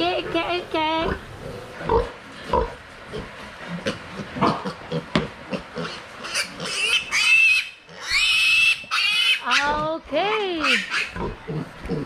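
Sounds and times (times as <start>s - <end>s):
piglet squealing: 6.2s - 9.9s, 10.6s - 11.3s
piglet grunting: 10.6s - 12.0s.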